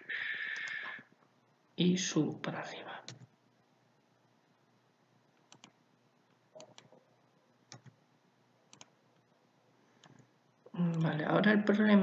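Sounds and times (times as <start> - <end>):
computer mouse clicking: 0.5 - 0.9, 3.0 - 3.3, 5.4 - 7.0, 7.6 - 8.0, 8.7 - 9.3, 10.0 - 10.3.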